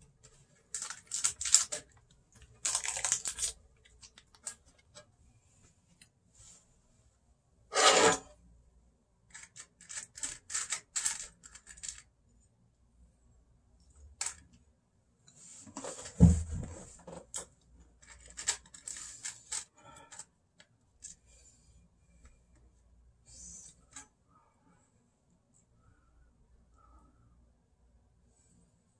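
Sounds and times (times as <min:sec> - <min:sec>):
objects rustling and clicking: 0:00.2 - 0:05.1, 0:15.3 - 0:20.3
loud rasping scrape: 0:07.7 - 0:08.3.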